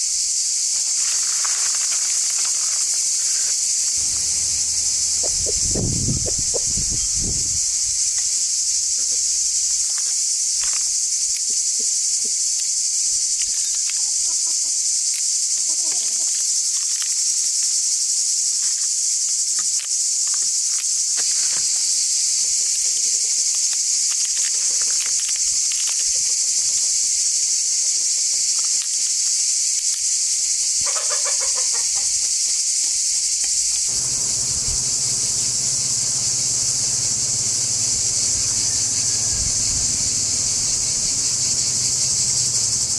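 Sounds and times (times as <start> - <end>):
insects buzzing: 0.0 - 42.9
chickens clucking: 2.6 - 7.9, 30.8 - 32.3.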